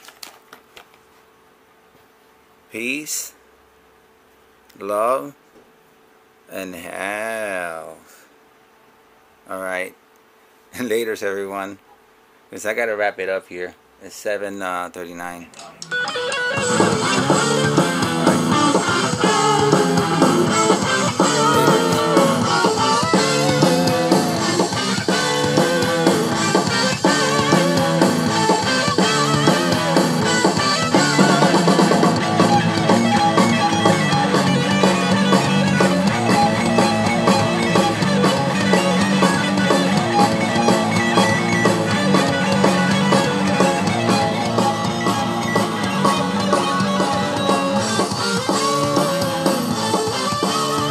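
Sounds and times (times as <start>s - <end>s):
music with guitar and drums: 15.5s - 50.9s.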